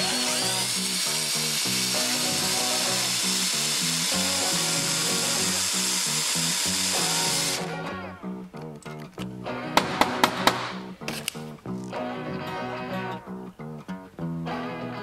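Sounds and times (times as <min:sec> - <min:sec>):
power drill boring through steel: 0:00.0 - 0:07.7
background music with beat: 0:06.8 - 0:15.0.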